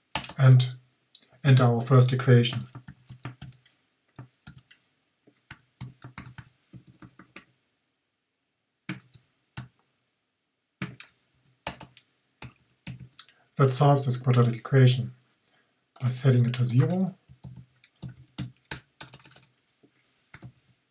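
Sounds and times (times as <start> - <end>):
keyboard typing: 0.2 - 0.4, 2.5 - 4.8, 5.5 - 7.5, 8.9 - 9.7, 10.8 - 13.2, 16.7 - 20.6.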